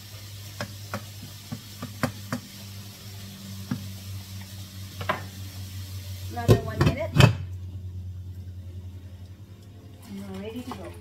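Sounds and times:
food sizzling in butter: 0.0s - 7.7s.

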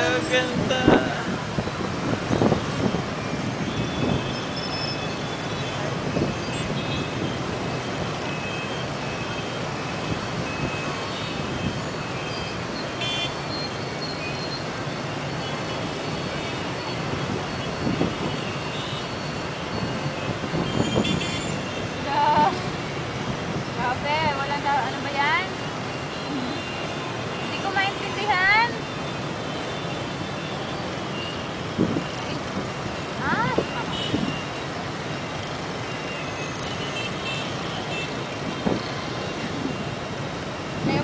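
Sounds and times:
motorbike traffic din: 0.0s - 41.0s
short horn beeps: 10.5s - 14.7s, 19.8s - 22.0s.

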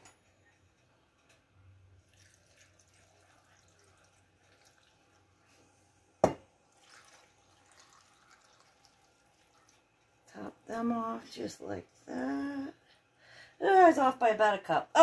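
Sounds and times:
liquid trickling and dripping: 2.0s - 5.6s, 6.6s - 10.8s.

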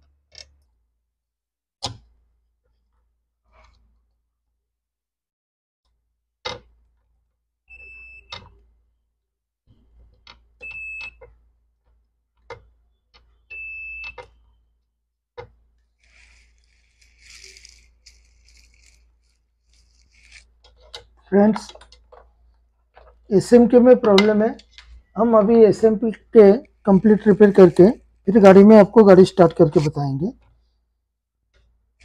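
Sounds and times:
multimeter beeps: 10.6s - 11.2s
scratchy rubbing: 15.9s - 21.2s, 25.7s - 30.2s.

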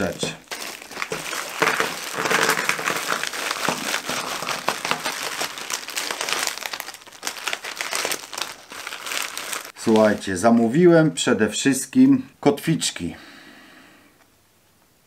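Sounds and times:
plastic packaging crinkling: 0.0s - 10.8s.

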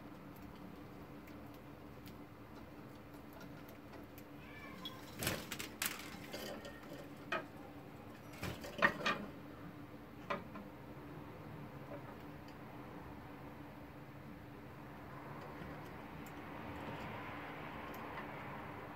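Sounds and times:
wing flutters: 4.8s - 6.9s.

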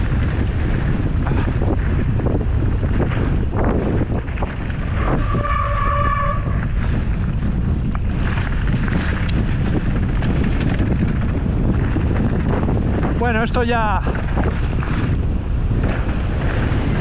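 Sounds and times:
bike rattling over stones: 0.0s - 17.0s
bike tyres rolling on gravel: 0.0s - 17.0s
wind buffeting microphone: 0.0s - 17.0s
high squeal: 5.0s - 6.6s.

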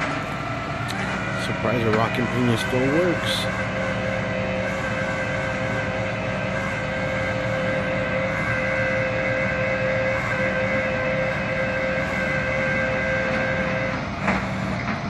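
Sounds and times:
hydraulic winch whine: 0.0s - 15.0s.

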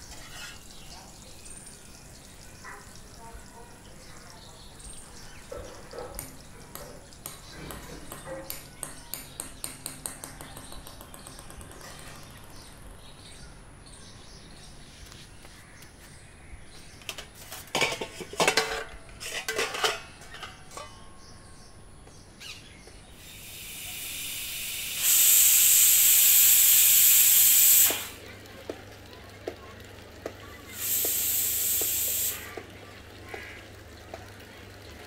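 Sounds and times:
pots and pans clattering: 17.0s - 21.2s
pressure cooker venting steam: 23.2s - 35.0s.

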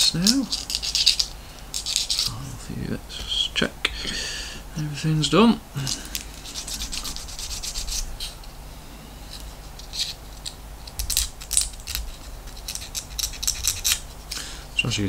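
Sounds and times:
hands scratching plastic model part: 0.0s - 2.4s, 6.0s - 8.5s, 9.3s - 14.4s.

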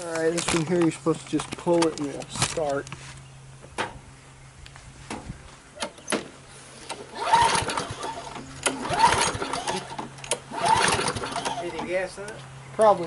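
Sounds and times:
recoil starter cord cranking: 6.9s - 12.0s.

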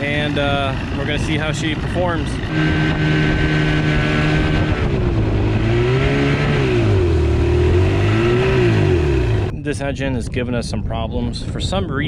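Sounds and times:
outboard motor running: 0.0s - 9.6s.

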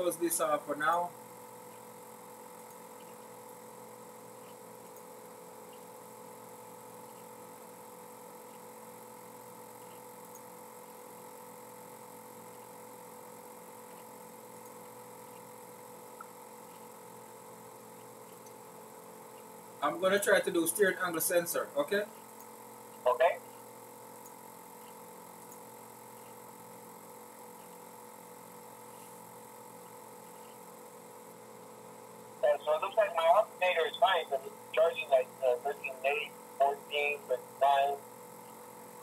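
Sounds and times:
electrical hum: 0.0s - 39.0s
background hiss: 32.4s - 38.0s.

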